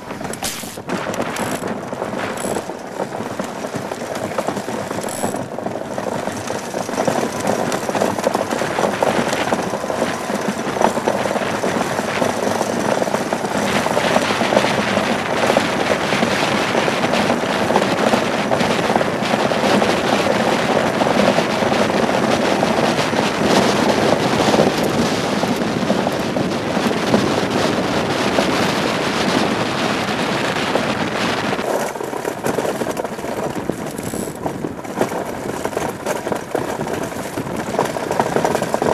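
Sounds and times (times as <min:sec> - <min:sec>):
blades grinding over ice: 0:00.0 - 0:38.9.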